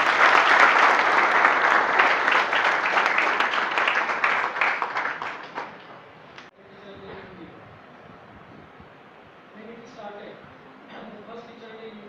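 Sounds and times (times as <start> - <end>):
audience clapping: 0.0 - 6.5.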